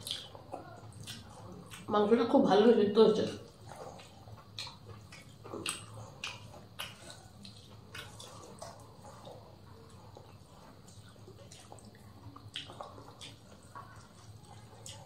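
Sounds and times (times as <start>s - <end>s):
fingers mixing wet food: 3.2s - 15.0s.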